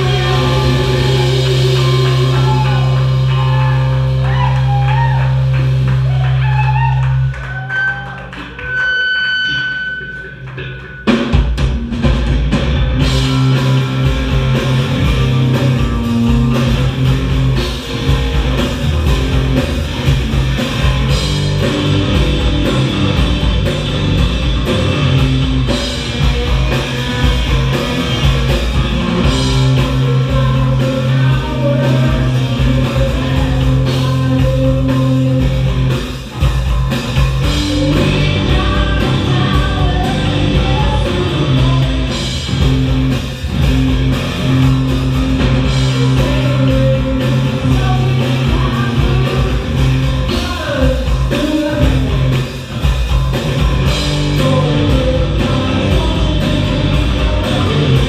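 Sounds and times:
drum kit: 0.0s - 58.0s
electric bass: 0.0s - 58.0s
electric guitar: 0.0s - 58.0s.

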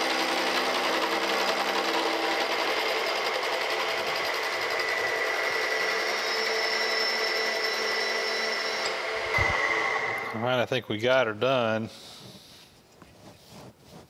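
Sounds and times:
milling machine cutting metal: 0.0s - 10.4s.

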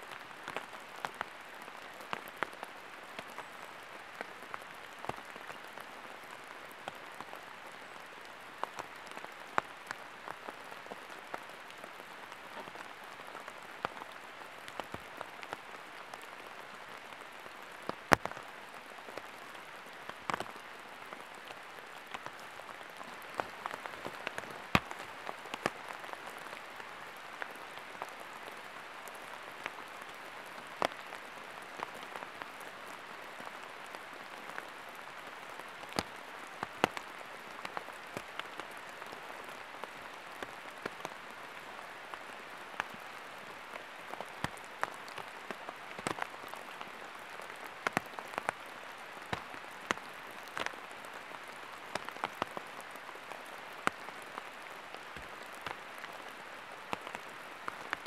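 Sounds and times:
sharp raindrops striking: 0.0s - 58.0s
steady rain in forest: 0.0s - 58.0s.

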